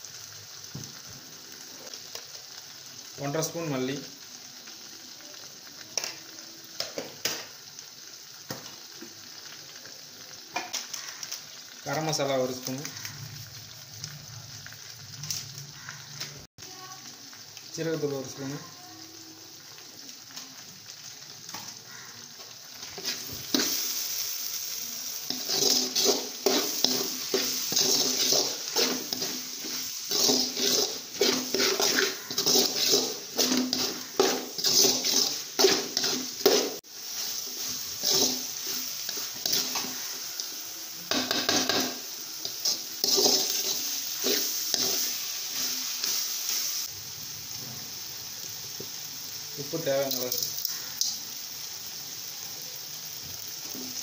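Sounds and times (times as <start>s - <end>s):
masala sizzling: 0.0s - 54.0s
metal ladle scraping a pot: 25.3s - 36.8s, 42.7s - 45.0s.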